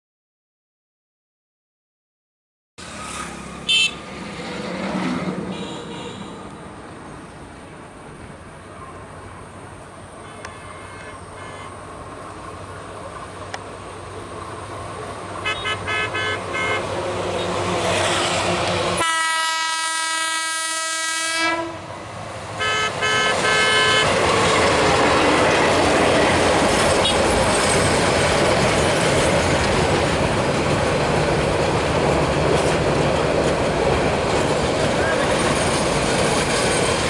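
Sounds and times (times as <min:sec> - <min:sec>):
train running noise: 0:02.8 - 0:37.0
train horn toots: 0:03.7 - 0:04.0, 0:05.5 - 0:06.4, 0:10.2 - 0:11.8, 0:15.4 - 0:18.2, 0:19.0 - 0:21.8, 0:22.6 - 0:24.2.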